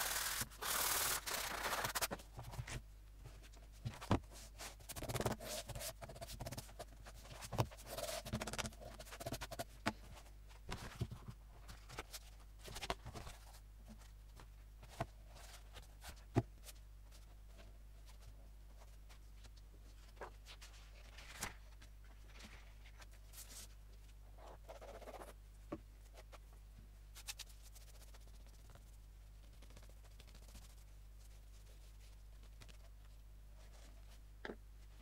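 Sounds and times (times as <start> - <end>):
sanding rub on paper: 0.0 - 2.1
paper rustling: 0.3 - 2.8.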